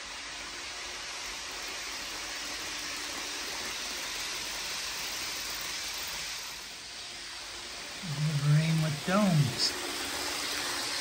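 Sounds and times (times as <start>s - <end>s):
model trains rolling on track: 0.0s - 11.0s.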